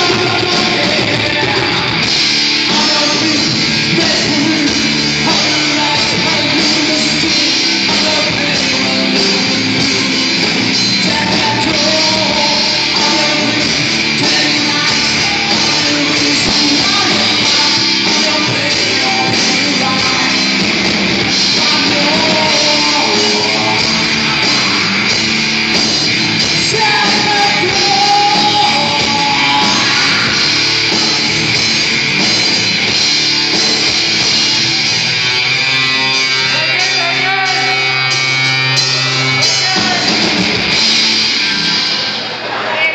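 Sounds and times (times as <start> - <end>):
person singing: 0.0 - 25.3, 26.3 - 30.7
live rock band playing: 0.0 - 42.9.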